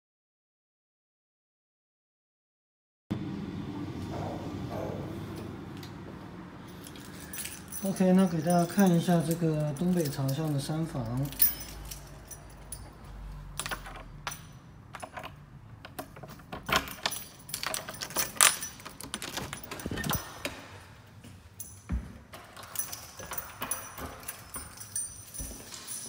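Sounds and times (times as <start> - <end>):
keys jangling: 6.6 - 20.8, 21.5 - 26.0.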